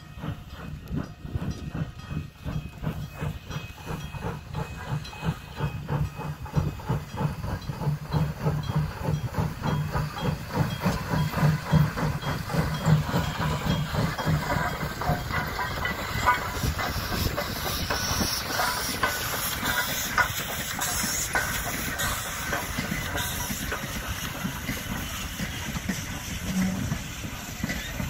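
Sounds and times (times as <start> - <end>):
steam locomotive hissing: 0.0 - 28.0
wheels on rails: 0.0 - 28.0.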